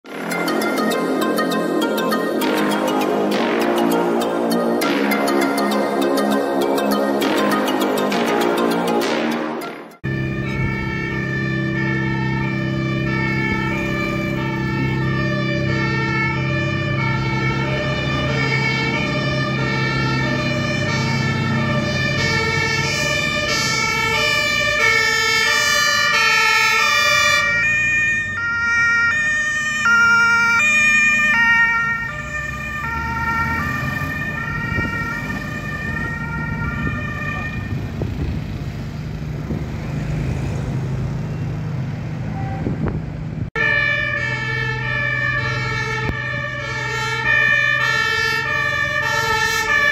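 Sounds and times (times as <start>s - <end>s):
two-tone fire engine sirens: 0.0s - 49.9s
low engine drone: 0.1s - 27.5s.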